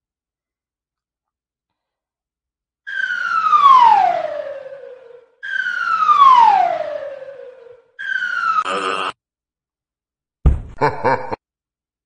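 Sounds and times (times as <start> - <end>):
siren-like falling tone: 2.9 - 9.1.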